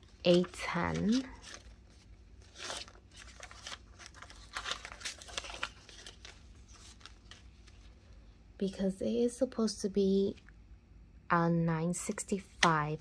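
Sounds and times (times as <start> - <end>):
paper banknotes rustling: 0.0 - 8.0.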